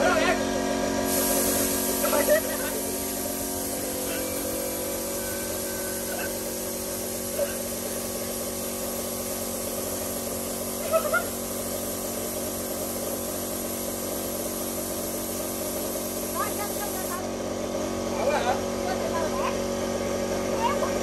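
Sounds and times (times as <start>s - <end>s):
air compressor running: 0.0s - 21.0s
air hissing through hose: 1.0s - 17.2s.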